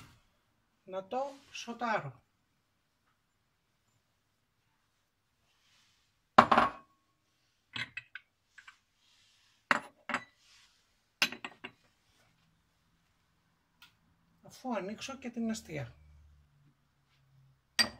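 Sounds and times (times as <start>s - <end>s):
cookware clinking and knocking: 6.4s - 6.8s, 11.2s - 11.8s.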